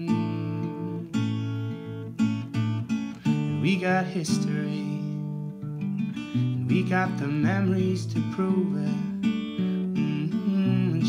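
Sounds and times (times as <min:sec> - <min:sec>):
acoustic guitar strumming: 0:00.0 - 0:11.0.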